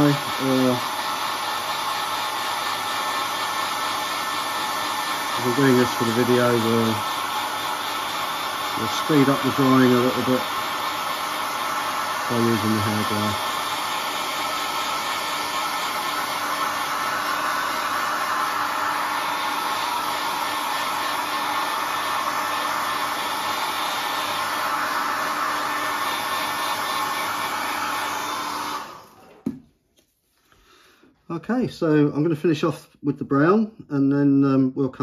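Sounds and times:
hot-air blower running: 0.0s - 29.6s.

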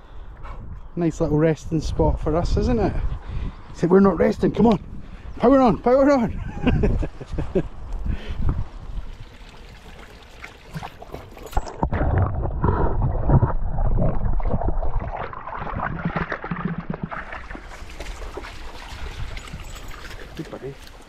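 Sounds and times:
muffled underwater stream gurgling: 8.8s - 20.4s
dog splashing in muddy puddle: 9.0s - 21.0s.

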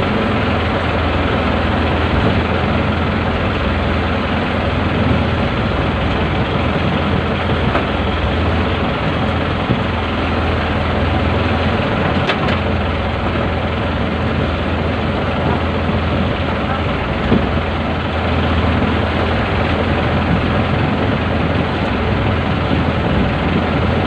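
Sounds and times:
boat engine humming: 0.0s - 24.0s.

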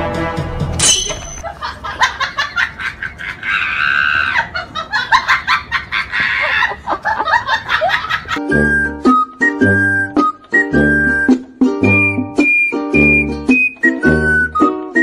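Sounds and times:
person laughing: 1.4s - 8.4s.

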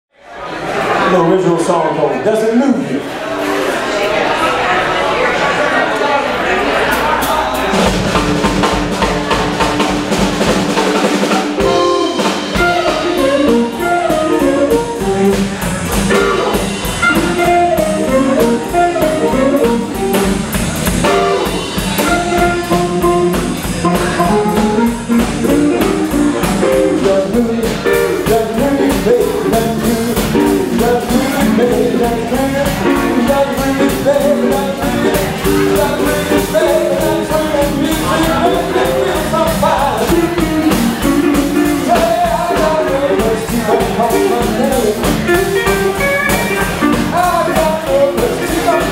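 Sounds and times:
blues band playing: 0.7s - 48.9s
harmonica lead lines: 11.4s - 48.9s.

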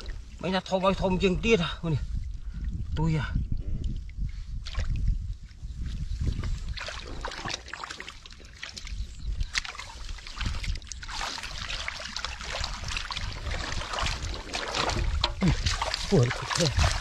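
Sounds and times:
small water splashes: 4.0s - 5.1s, 6.2s - 17.0s
hands sloshing through muddy water: 4.2s - 17.0s.

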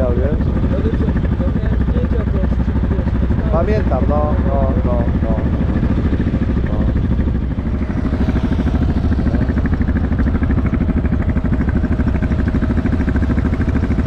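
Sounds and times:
motorcycle engine running: 0.0s - 14.0s
steady higher tone: 1.8s - 13.9s.

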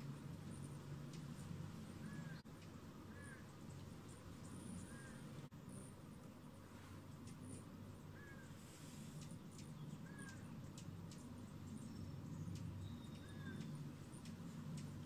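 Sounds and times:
bird chirping: 0.4s - 6.0s, 7.2s - 15.0s
faint ticks: 7.2s - 7.7s, 9.0s - 11.4s, 12.5s - 15.0s.

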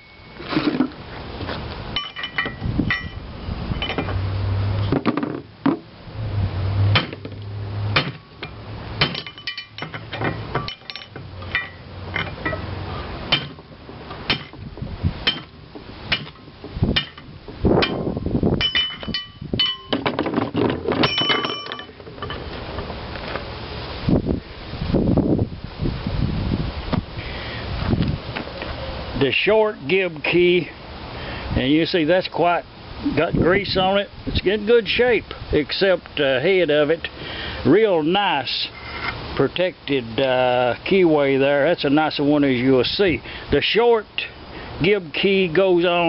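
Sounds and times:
metal-on-metal blows with clinking: 1.9s - 4.2s, 6.9s - 14.6s, 15.2s - 22.5s.

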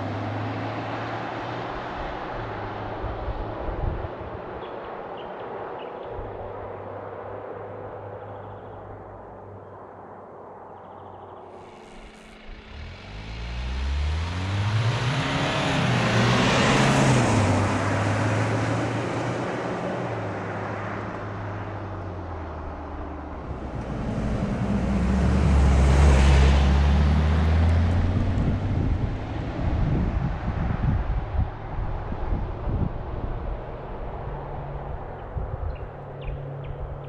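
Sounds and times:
diesel engine revving past: 11.6s - 31.0s.

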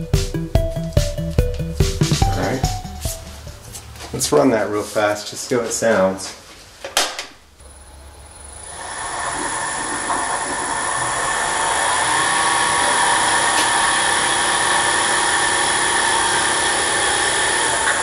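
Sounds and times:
high steady whine: 7.5s - 18.0s
spindle whirring at high speed: 7.6s - 18.0s.

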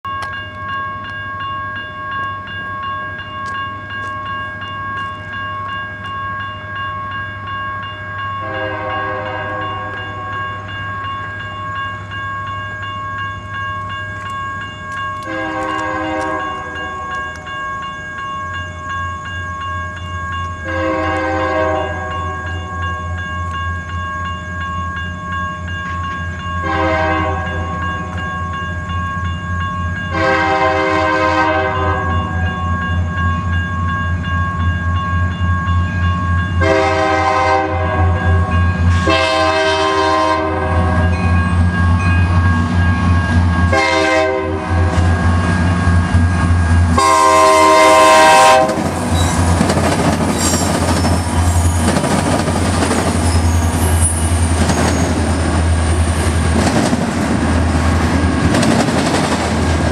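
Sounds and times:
crossing bell ringing: 0.0s - 59.9s
locomotive air horn blasts: 8.4s - 9.9s, 15.3s - 17.0s, 20.7s - 22.2s, 26.6s - 27.6s, 30.1s - 32.1s, 36.6s - 38.4s, 39.0s - 41.0s, 43.7s - 44.9s, 47.0s - 48.9s.

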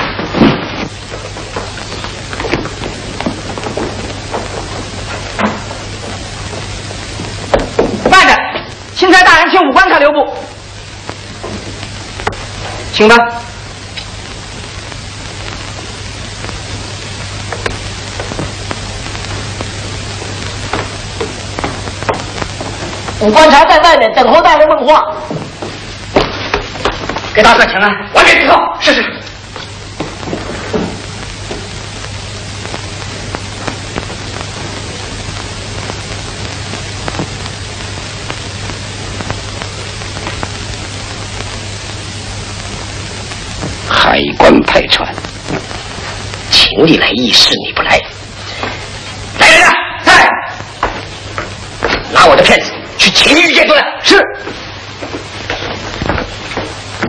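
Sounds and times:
film soundtrack hiss and hum: 0.0s - 57.0s
scattered crackles: 0.0s - 57.0s
faint crackle clicks: 13.8s - 23.2s, 31.0s - 43.9s.

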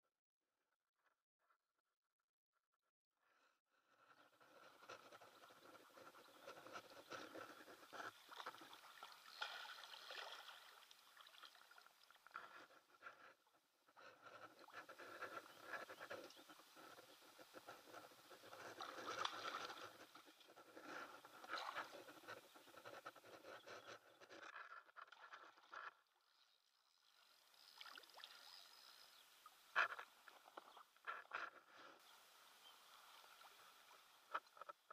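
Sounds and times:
small crackling ticks: 4.1s - 34.9s
water lapping against boat: 4.7s - 13.3s, 14.0s - 24.5s.

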